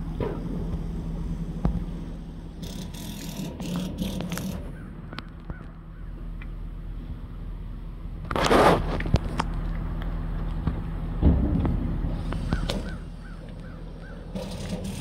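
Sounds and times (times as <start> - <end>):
steady low hum: 0.0 - 15.0
rustling noise: 8.3 - 9.7
birds honking calls: 12.4 - 14.7.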